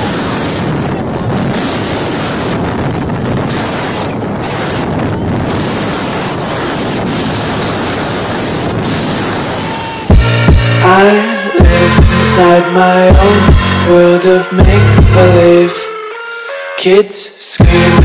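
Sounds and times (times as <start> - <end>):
wind buffeting microphone: 0.0 - 10.8.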